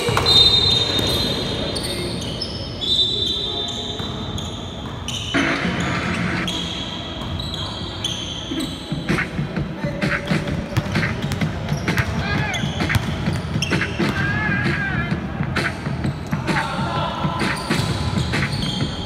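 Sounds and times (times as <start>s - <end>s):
sneakers squeaking: 0.0s - 19.0s
basketball dribbling: 10.0s - 15.3s
players calling out: 10.0s - 15.7s.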